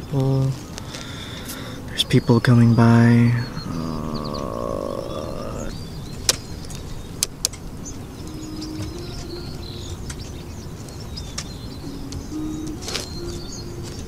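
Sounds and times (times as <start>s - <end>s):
distant traffic rumble: 0.0s - 14.0s
faint bird chirps: 0.0s - 14.0s
dove cooing: 3.4s - 5.9s, 8.0s - 14.0s.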